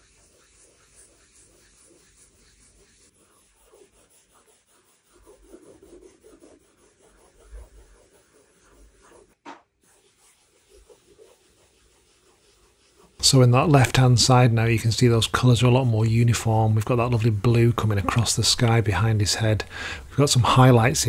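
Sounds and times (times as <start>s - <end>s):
swab rubbing on canvas: 0.0s - 21.0s.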